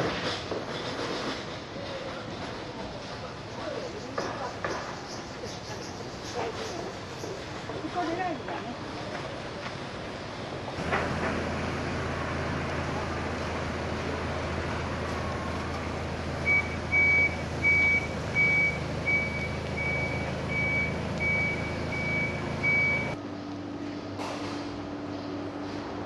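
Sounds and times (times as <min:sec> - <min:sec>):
street traffic rumble: 0:00.0 - 0:26.0
high electronic beeps: 0:16.5 - 0:23.2.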